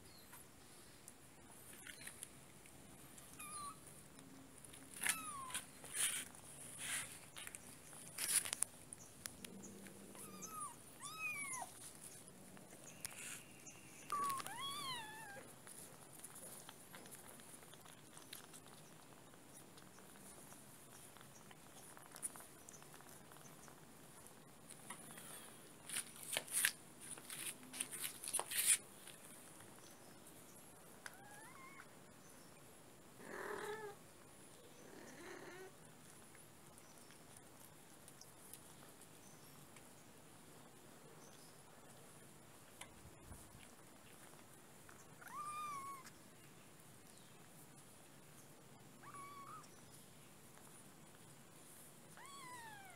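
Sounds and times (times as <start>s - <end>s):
cat meowing: 10.1s - 11.7s, 45.2s - 46.1s, 49.0s - 49.7s, 52.2s - 52.9s.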